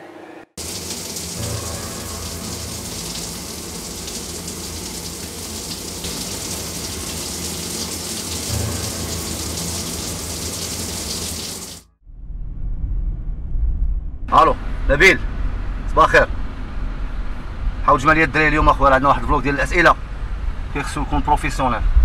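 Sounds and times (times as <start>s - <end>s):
shower water spraying: 0.6s - 11.9s.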